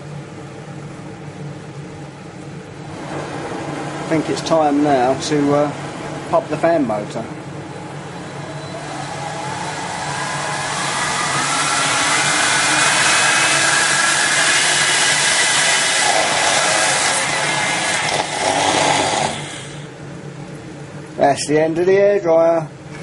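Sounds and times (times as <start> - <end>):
rush of air: 7.7 - 19.9
hair dryer motor whining: 7.8 - 19.8.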